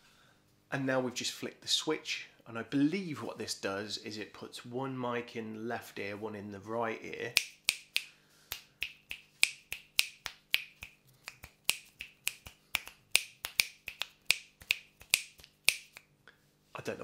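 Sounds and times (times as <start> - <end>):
fingers snapping: 7.4 - 16.1.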